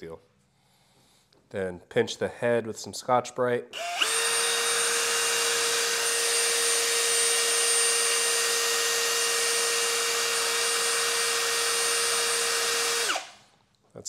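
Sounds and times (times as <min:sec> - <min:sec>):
electric drill whining: 0:03.8 - 0:13.5.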